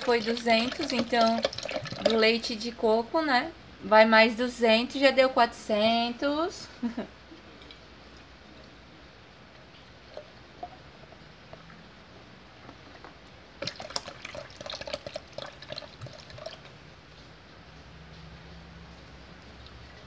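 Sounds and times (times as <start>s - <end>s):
milk pouring into blender: 0.0s - 2.2s, 13.6s - 16.8s.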